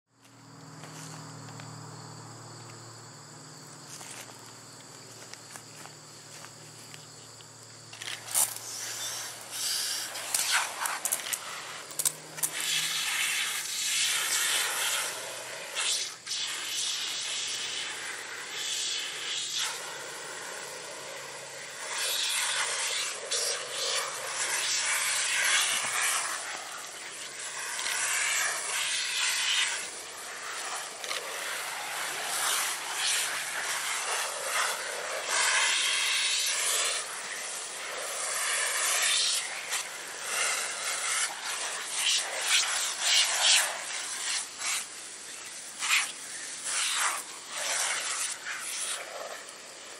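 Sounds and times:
hose nozzle spraying water: 7.9 - 49.9.

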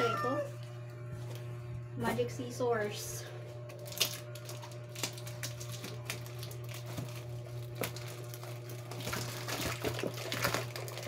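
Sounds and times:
steady low hum: 0.0 - 11.0
plastic crinkling: 3.7 - 11.0.

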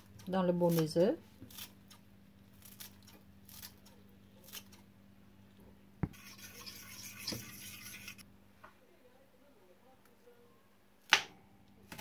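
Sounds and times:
fork beating eggs in bowl: 6.1 - 8.2.

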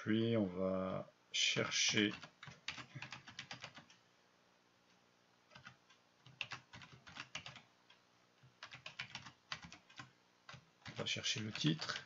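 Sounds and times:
keyboard typing: 1.8 - 4.0, 5.5 - 12.0.

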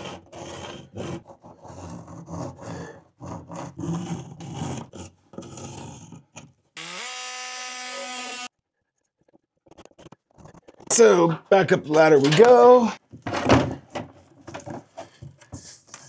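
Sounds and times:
scraping and rubbing: 0.0 - 6.6, 8.9 - 11.2
cordless drill whirring: 6.8 - 8.5.

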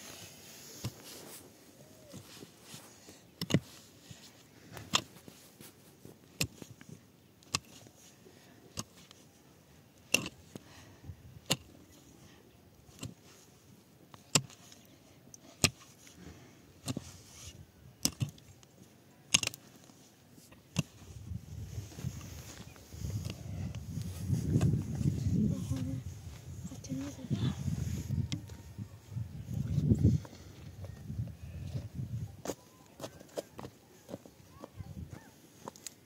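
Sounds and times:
pickaxe striking stony earth: 3.4 - 3.7, 10.1 - 10.6, 12.9 - 13.2, 14.2 - 14.7, 15.6 - 16.0, 18.0 - 18.4, 19.3 - 19.6, 20.7 - 21.2.

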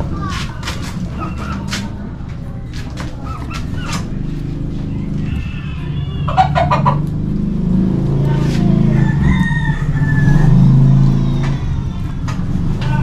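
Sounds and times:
low engine drone: 0.0 - 13.0
rooster crowing: 4.9 - 7.0, 8.6 - 12.0.

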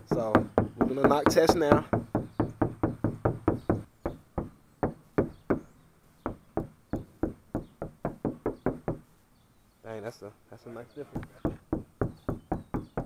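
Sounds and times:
knuckles knocking on sheet metal: 0.0 - 5.6, 6.2 - 9.1, 11.1 - 13.0.

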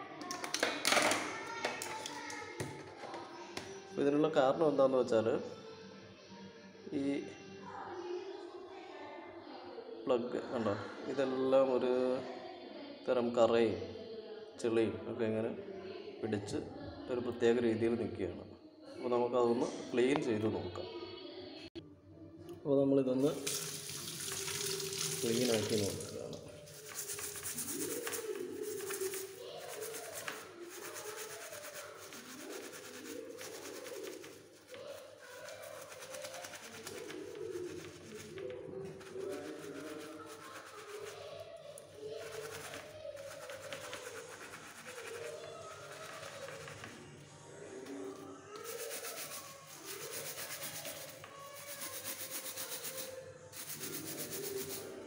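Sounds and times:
scouring pad scrubbing plastic: 23.3 - 41.4, 42.1 - 47.0, 48.6 - 54.9.

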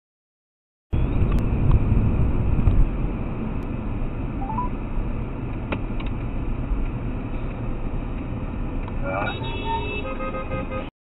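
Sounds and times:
car engine and tyre rumble: 1.0 - 10.9
stepped electronic beep: 4.4 - 4.7.

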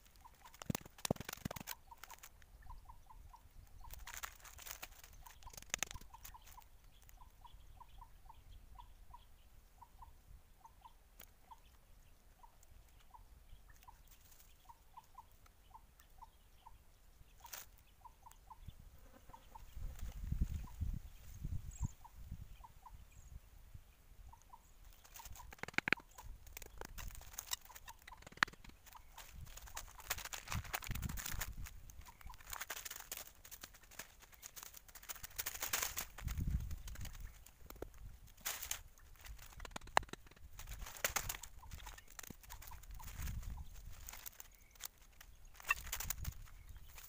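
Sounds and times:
rustling in dry leaves: 0.0 - 2.4, 3.8 - 7.1, 17.4 - 17.7, 24.9 - 47.0.

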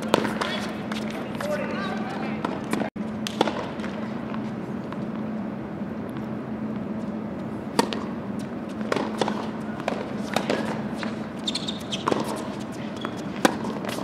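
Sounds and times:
tennis racket hitting ball: 0.0 - 1.6, 2.4 - 3.9, 7.7 - 14.0
steady low hum: 0.0 - 14.0
ball bouncing: 11.6 - 12.4.

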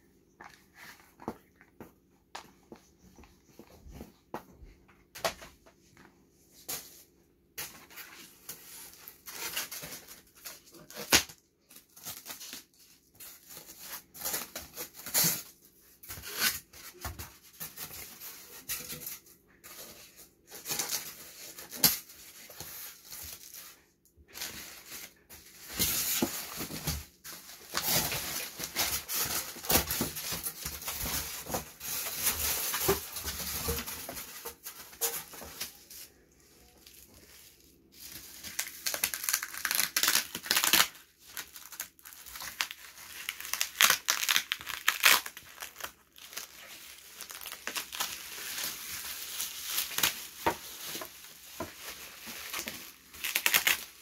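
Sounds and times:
packaging rustling and crackling: 7.7 - 54.0.

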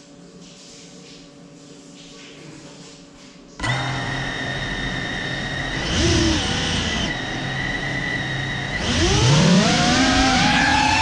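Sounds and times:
drone propellers whining: 4.4 - 11.0.

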